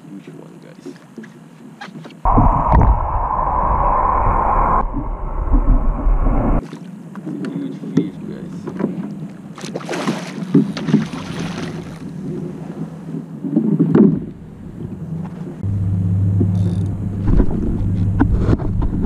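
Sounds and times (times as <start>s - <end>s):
fish splashing at the surface: 9.7s - 12.0s
motorboat engine drone: 14.2s - 19.0s.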